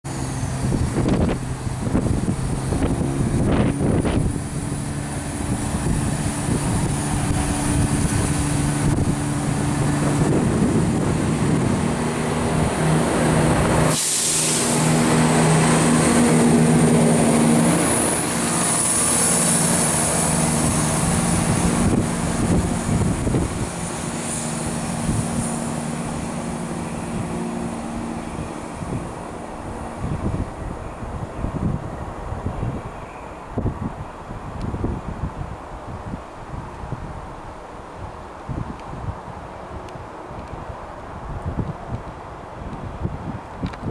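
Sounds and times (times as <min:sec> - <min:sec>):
train diesel engines running: 0:00.1 - 0:43.9
brief hiss: 0:13.8 - 0:15.0.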